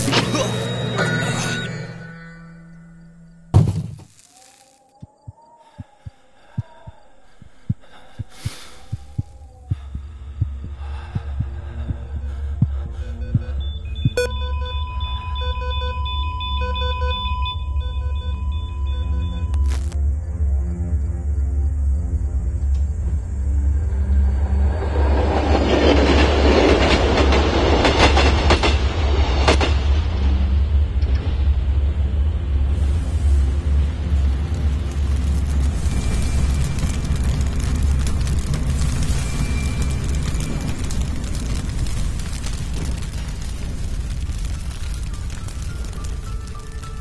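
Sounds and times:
low drone: 0:00.0 - 0:28.0, 0:28.7 - 0:46.6
heartbeat-like low thumps: 0:05.0 - 0:21.3
faint wavering tone: 0:13.4 - 0:20.0
train rushing past: 0:22.9 - 0:37.0.

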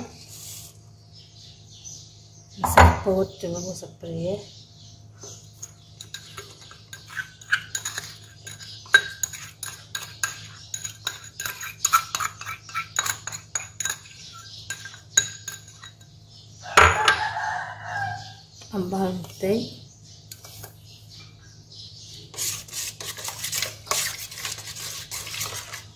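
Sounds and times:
metal spoon clinking on bowl: 0:06.0 - 0:16.2
rooster crowing: 0:16.6 - 0:18.4.

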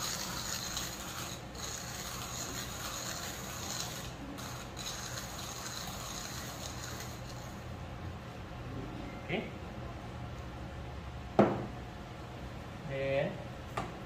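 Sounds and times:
manual coffee grinder grinding beans: 0:00.0 - 0:07.6.

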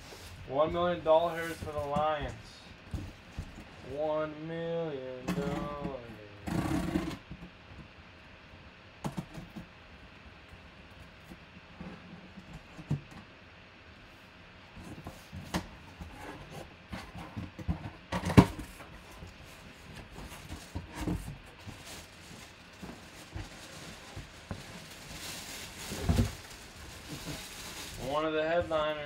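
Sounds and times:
plastic wrapping rustling: 0:00.0 - 0:03.9, 0:18.5 - 0:29.0.

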